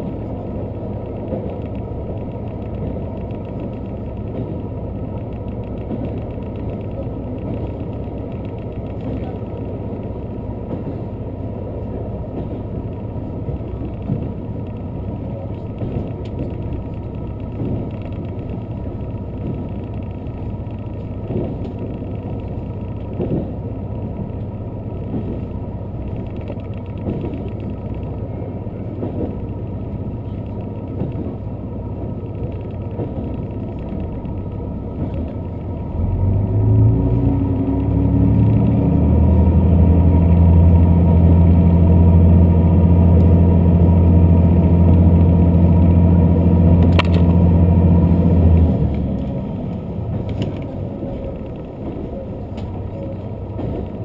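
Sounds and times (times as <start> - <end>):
rail joint clacks: 0.0 - 54.0
train wheels rumbling: 0.0 - 54.0
diesel engine revving: 35.4 - 53.8.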